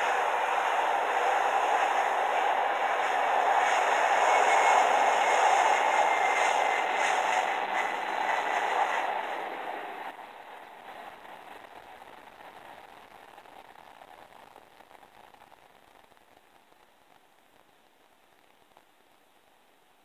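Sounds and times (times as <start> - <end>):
jet engines through small speaker: 0.0 - 11.2.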